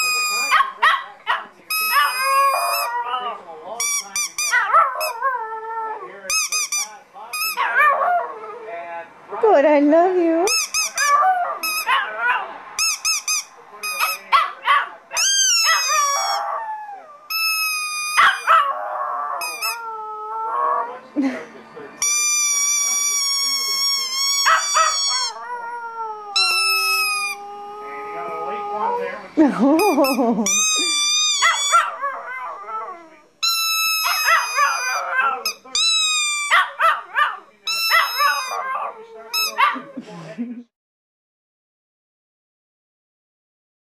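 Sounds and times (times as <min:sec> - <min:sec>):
squeaky toy squeaks: 0:00.0 - 0:00.8, 0:01.7 - 0:03.0, 0:03.8 - 0:05.2, 0:06.3 - 0:07.8, 0:10.5 - 0:12.2, 0:12.8 - 0:14.3, 0:15.1 - 0:16.6, 0:17.3 - 0:18.6, 0:19.4 - 0:19.8, 0:22.0 - 0:25.4, 0:26.4 - 0:27.5, 0:29.6 - 0:32.0, 0:33.4 - 0:39.9
dog howling: 0:00.0 - 0:03.4, 0:04.4 - 0:06.3, 0:07.5 - 0:08.8, 0:10.8 - 0:12.6, 0:14.0 - 0:21.0, 0:22.8 - 0:29.3, 0:30.0 - 0:40.0.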